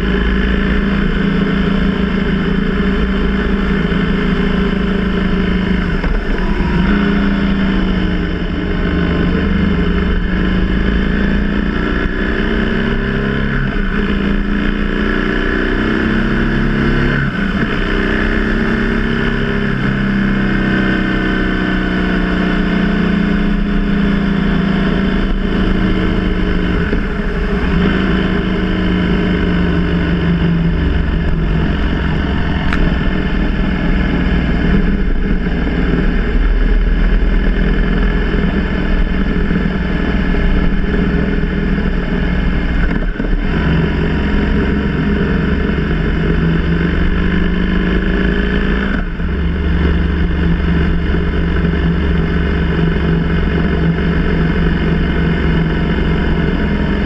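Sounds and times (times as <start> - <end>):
motorcycle engine running: 0.0 - 57.0
wind rumble: 25.0 - 47.5.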